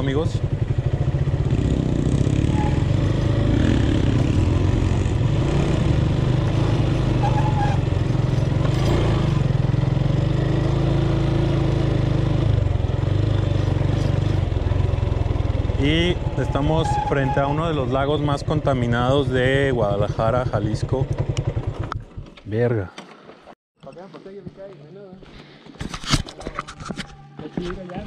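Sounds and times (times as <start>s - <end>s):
motorcycle engine running: 0.0s - 22.4s.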